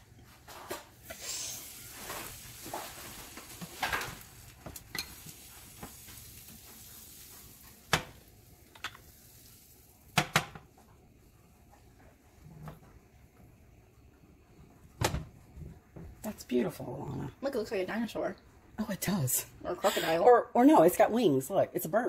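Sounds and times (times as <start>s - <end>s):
butter sizzling in a frying pan: 1.0s - 10.5s.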